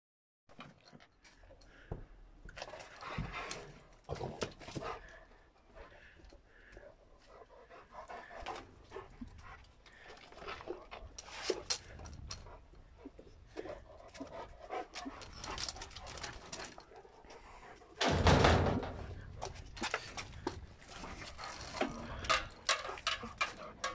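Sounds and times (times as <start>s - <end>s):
dogs panting: 0.6s - 23.9s
clicks and rattles: 18.0s - 23.9s.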